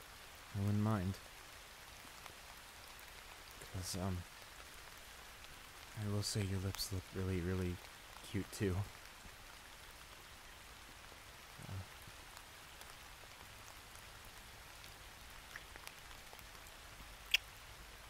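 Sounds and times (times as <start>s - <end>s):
soft steady rain: 0.0s - 18.0s
sharp kiss sound: 17.3s - 17.5s.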